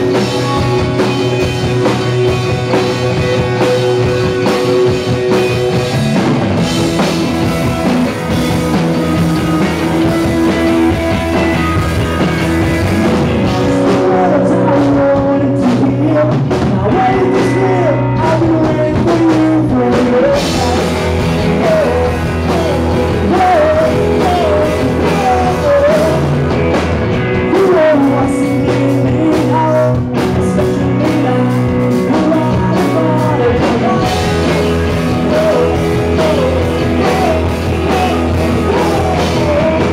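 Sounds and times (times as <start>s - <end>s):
bass guitar: 0.0s - 39.9s
drums: 0.0s - 39.9s
electric guitar: 0.0s - 39.9s
person singing: 6.6s - 39.9s.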